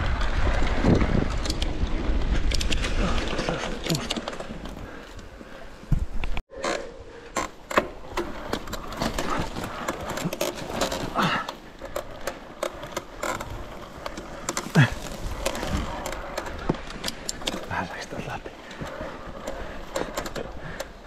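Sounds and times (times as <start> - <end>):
tyres rumbling on trail: 0.0 - 21.0
bike chain and frame rattling: 7.3 - 21.0.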